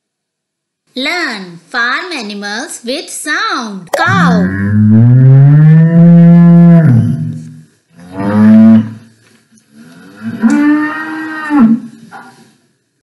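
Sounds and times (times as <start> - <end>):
cow mooing: 4.2 - 7.4, 8.0 - 9.0, 10.0 - 11.9.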